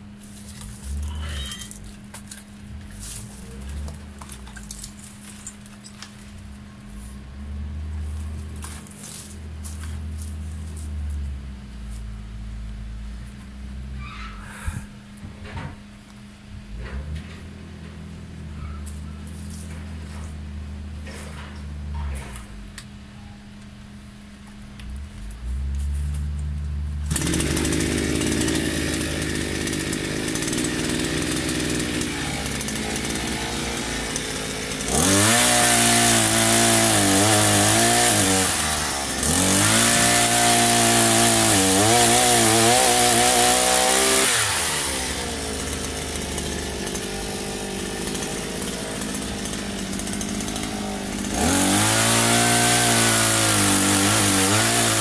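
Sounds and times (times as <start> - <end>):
pole chainsaw revving: 27.0 - 55.0.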